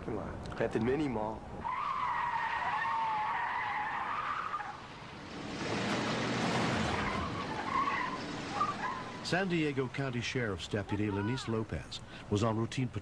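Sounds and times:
tyres squealing: 0:01.6 - 0:10.1
rough skidding rush: 0:01.6 - 0:10.3
truck engine: 0:01.6 - 0:10.8.

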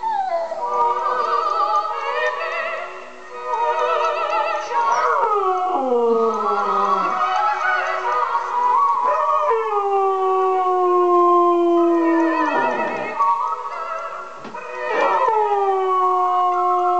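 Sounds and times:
recorded operatic soprano singing: 0:00.0 - 0:16.9
dog howling: 0:03.4 - 0:16.9.

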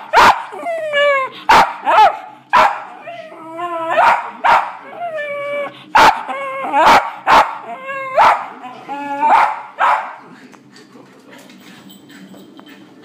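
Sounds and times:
dog barking: 0:00.1 - 0:00.5, 0:01.5 - 0:03.0, 0:03.9 - 0:04.8, 0:06.0 - 0:06.2, 0:06.8 - 0:08.6, 0:09.2 - 0:10.2
dog whining: 0:03.0 - 0:04.2, 0:04.8 - 0:09.5.

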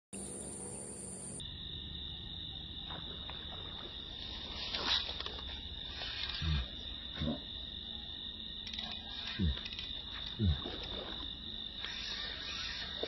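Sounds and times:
insects buzzing: 0:00.2 - 0:13.0.

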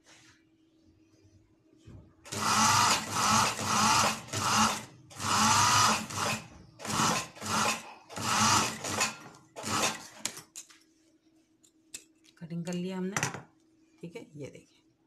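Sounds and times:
sewing machine stitching: 0:02.3 - 0:10.2.

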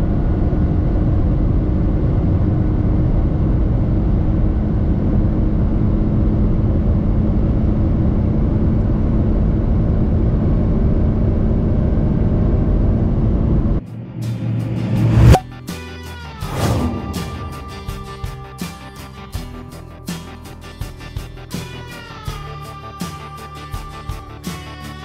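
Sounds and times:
car engine droning: 0:00.0 - 0:15.6.

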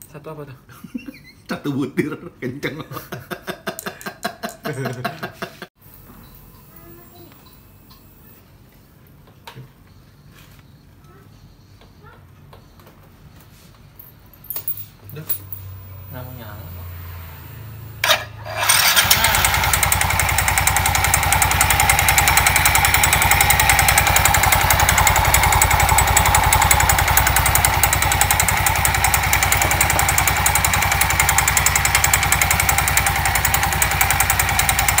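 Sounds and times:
scooter engine running: 0:15.6 - 0:35.0
drive belt spinning: 0:16.6 - 0:35.0.

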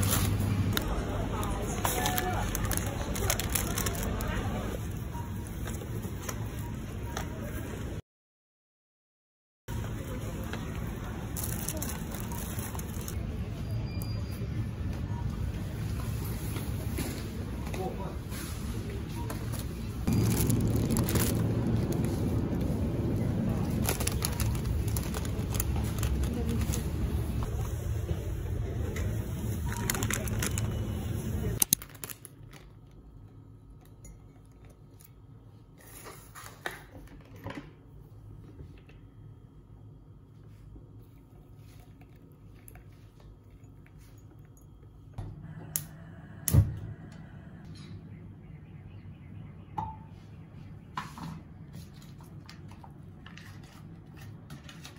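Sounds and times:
plastic packaging crinkling: 0:00.0 - 0:04.6, 0:11.3 - 0:13.2, 0:20.0 - 0:27.4, 0:29.6 - 0:33.0.

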